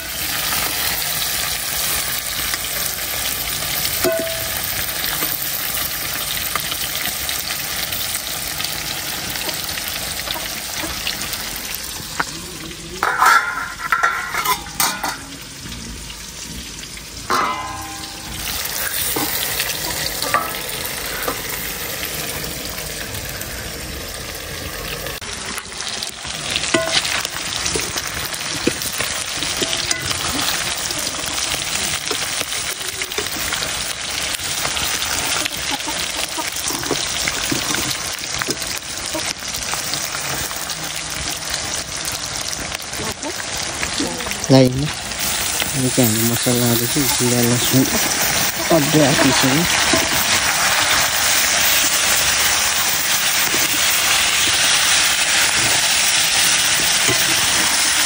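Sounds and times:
meat sizzling in a pan: 0.0s - 58.0s.

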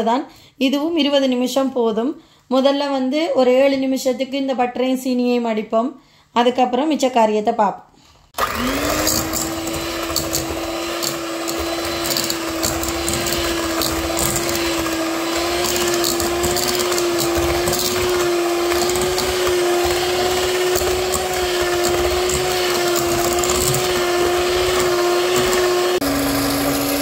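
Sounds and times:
electric hand mixer running: 8.4s - 27.0s.

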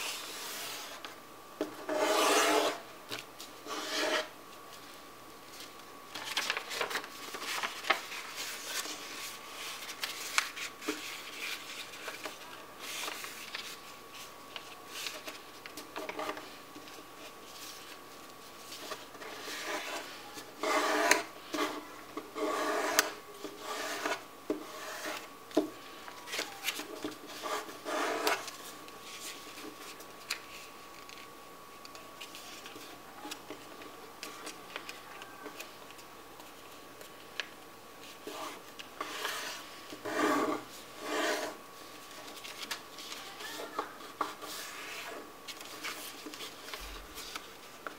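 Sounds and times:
paper rustling as it is folded: 3.1s - 22.0s, 25.1s - 47.9s.

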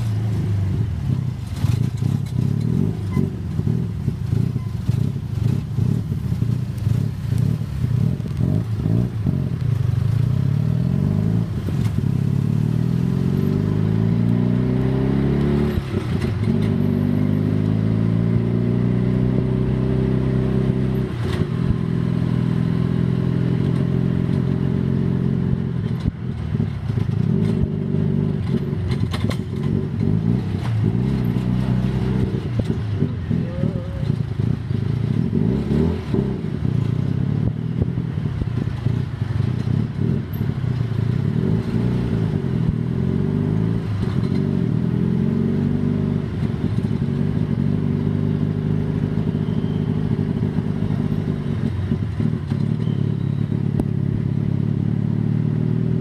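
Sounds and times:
tuk tuk engine running: 0.0s - 56.0s.

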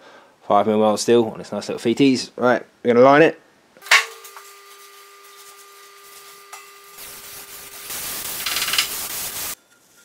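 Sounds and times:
compressed air hissing: 7.0s - 9.6s.

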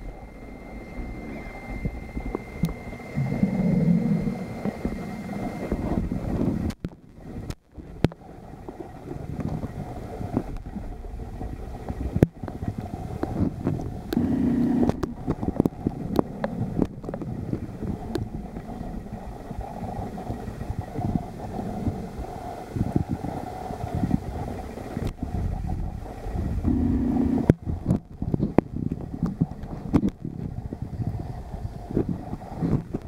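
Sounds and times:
short low hum: 0.0s - 9.0s, 9.8s - 22.3s, 24.6s - 28.6s
muffled underwater rumble: 0.0s - 33.0s.

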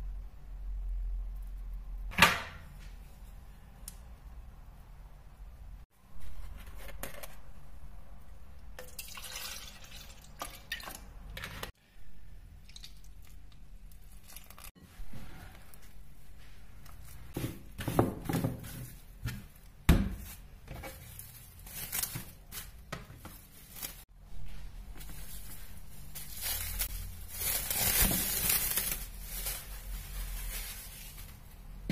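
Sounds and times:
cling film crinkling: 25.0s - 31.6s.

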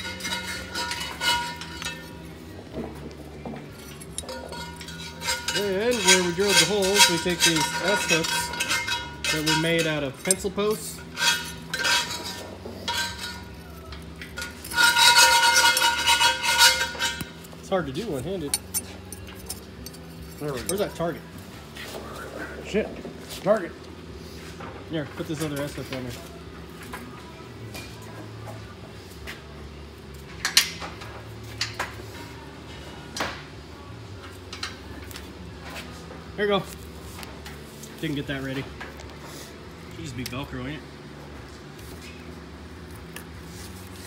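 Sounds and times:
ringing metallic scrape: 0.0s - 2.3s, 3.8s - 21.1s
steady low hum: 0.0s - 44.0s
metal hook clinking: 18.4s - 21.0s.

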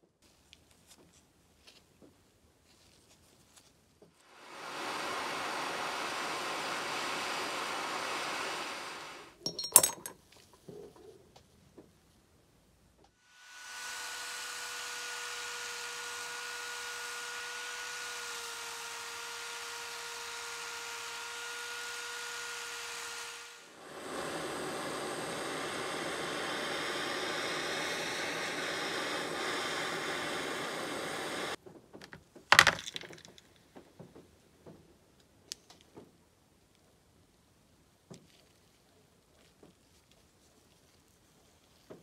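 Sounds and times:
drill with wire brush on metal: 4.2s - 9.7s, 13.2s - 31.6s
blowtorch flame hissing: 4.3s - 9.4s, 23.2s - 31.6s.

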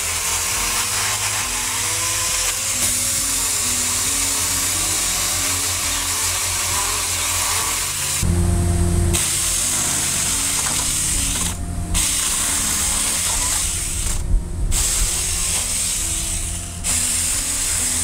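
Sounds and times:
chainsaw cutting wood: 0.0s - 18.0s.

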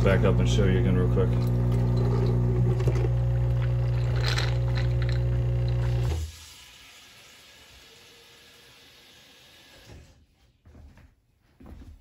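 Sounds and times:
coffee machine pump buzzing: 0.0s - 10.0s.

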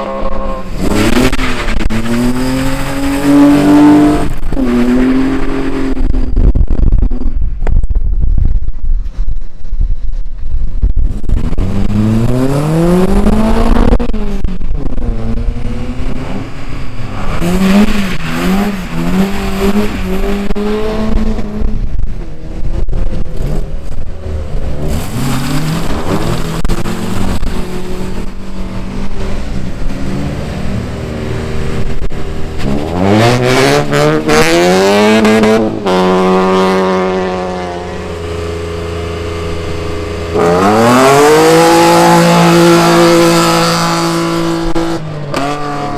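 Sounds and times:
race engines accelerating: 11.2s - 45.9s.

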